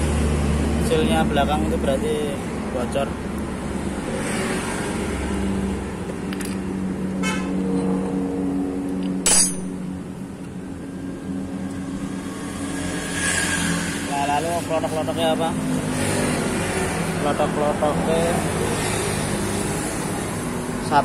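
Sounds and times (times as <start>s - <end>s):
sharp metal clack: 9.2s - 9.8s.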